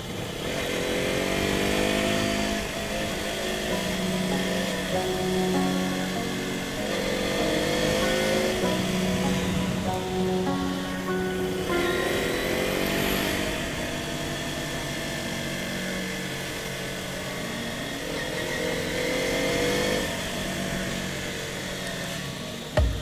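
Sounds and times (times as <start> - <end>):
motorcycle engine accelerating: 0.0 - 10.4.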